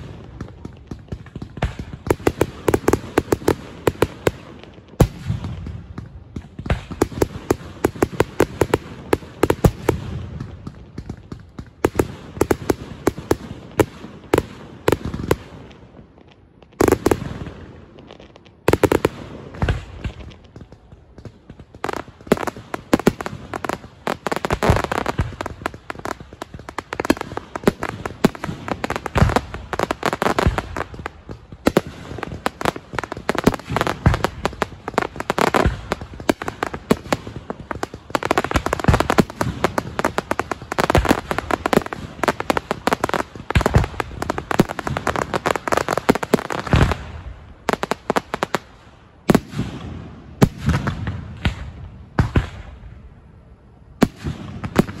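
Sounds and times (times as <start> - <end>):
fireworks bangs and crackling: 0.0 - 55.0.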